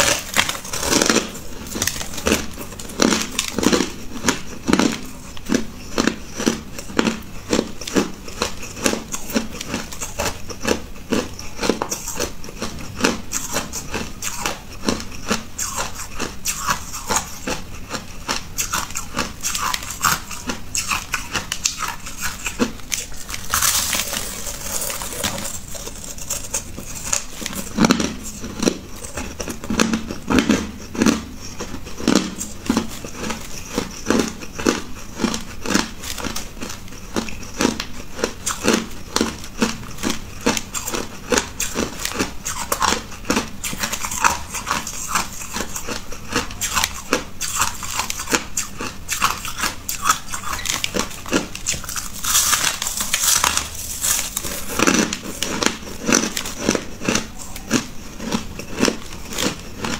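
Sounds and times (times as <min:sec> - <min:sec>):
ice crunching being chewed: 0:00.0 - 0:59.9.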